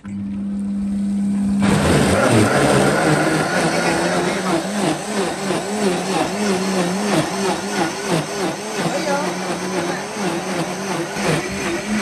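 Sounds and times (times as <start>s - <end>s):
blender motor churning thick mix: 0.7s - 12.0s.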